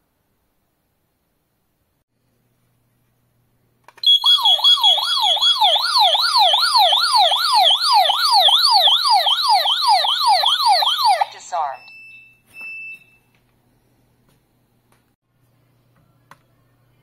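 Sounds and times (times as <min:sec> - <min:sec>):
wailing alarm siren: 0:04.0 - 0:11.8.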